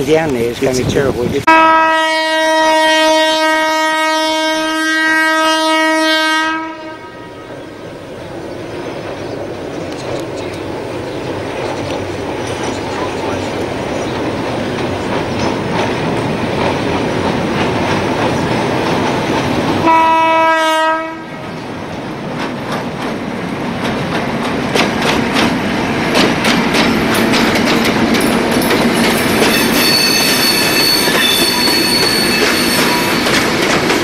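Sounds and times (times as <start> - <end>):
train horn blast: 1.5 - 7.6, 19.8 - 21.5
train wheels clattering: 8.6 - 20.4, 21.4 - 34.0
high-pitched wheel squeal: 29.2 - 33.6.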